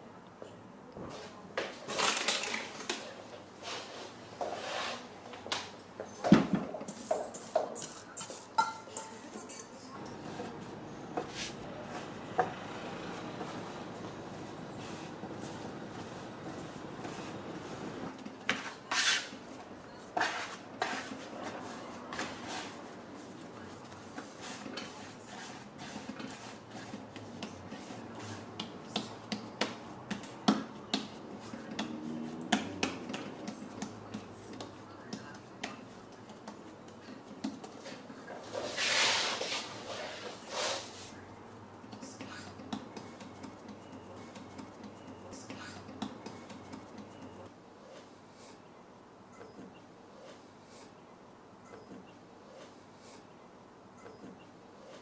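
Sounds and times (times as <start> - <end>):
hands kneading dough: 10.0 - 48.1.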